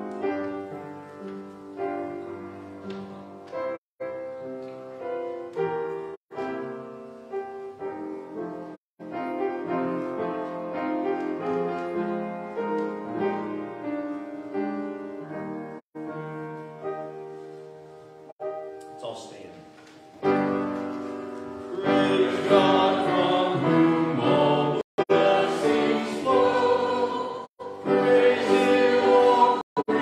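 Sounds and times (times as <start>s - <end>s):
slow solo piano: 0.0s - 22.6s.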